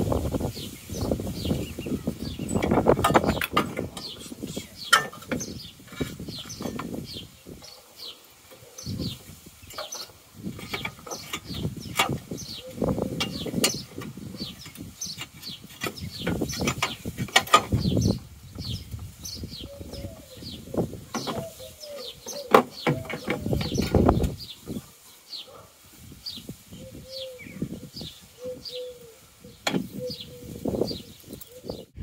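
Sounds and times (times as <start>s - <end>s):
bird chirping: 0.0s - 32.0s
plastic bottle rustling and scraping: 2.4s - 7.1s, 9.2s - 19.1s.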